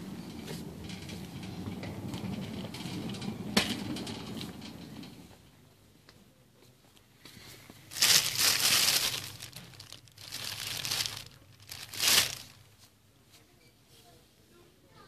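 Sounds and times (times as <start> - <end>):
plastic crinkling: 7.9 - 12.8.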